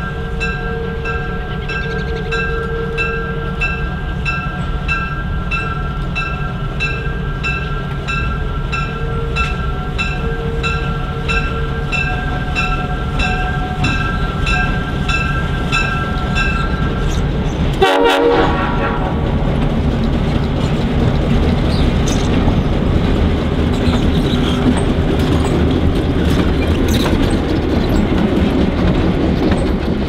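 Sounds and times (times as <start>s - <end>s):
locomotive bell ringing: 0.0s - 18.4s
diesel locomotive rumbling: 0.0s - 30.0s.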